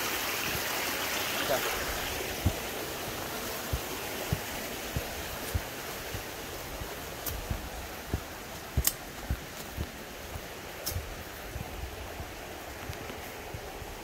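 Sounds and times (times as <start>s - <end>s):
flowing water rushing: 0.0s - 14.0s
footsteps on dirt trail: 1.8s - 14.0s
sharp clicks: 8.6s - 9.3s.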